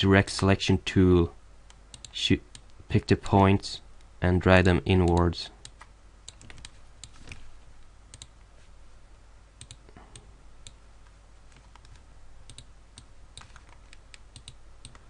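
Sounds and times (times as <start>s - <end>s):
low steady hiss: 0.0s - 15.0s
computer mouse clicks: 1.7s - 2.8s, 8.1s - 8.3s, 9.6s - 10.8s, 11.5s - 15.0s.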